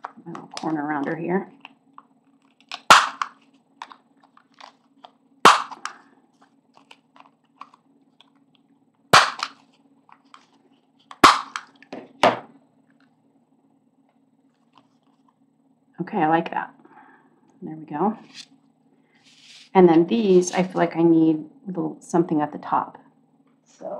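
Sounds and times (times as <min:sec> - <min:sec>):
punch snapping through card: 0:02.7 - 0:03.4, 0:05.5 - 0:06.0, 0:09.2 - 0:09.6, 0:11.1 - 0:11.8.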